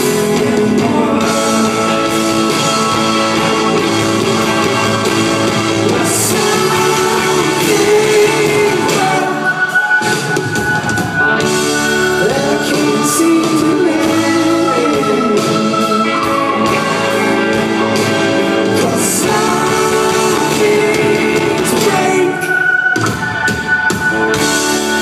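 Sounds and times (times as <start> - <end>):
rock band playing live: 0.0 - 25.0
lead vocal singing held notes: 5.8 - 10.2, 18.7 - 22.8.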